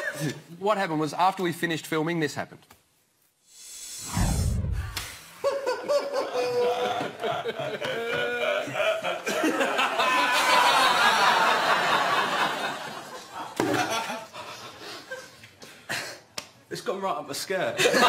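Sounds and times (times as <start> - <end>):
low whoosh: 3.5 - 5.3
people laughing: 5.4 - 15.5, 17.8 - 18.0.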